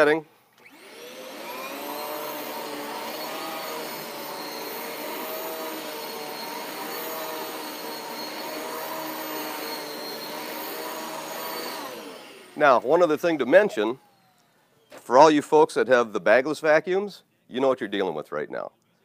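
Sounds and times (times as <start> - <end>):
upright vacuum cleaner on carpet: 0.5 - 15.1.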